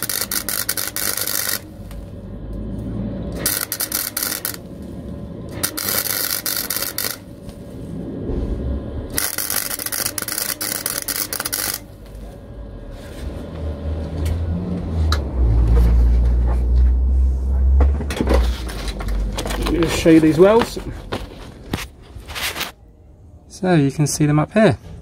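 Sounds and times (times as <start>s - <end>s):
welder crackling and spitting: 0.0s - 7.6s, 9.1s - 12.2s
low rumble: 1.6s - 22.3s.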